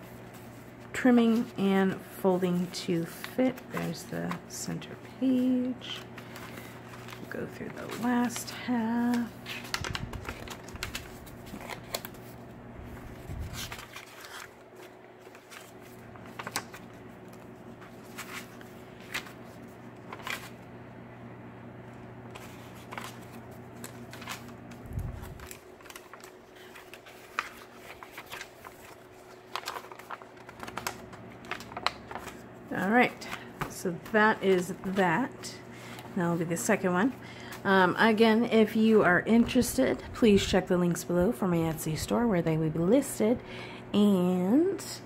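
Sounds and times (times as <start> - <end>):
paper pages turning: 0.0 - 20.6, 22.3 - 37.6.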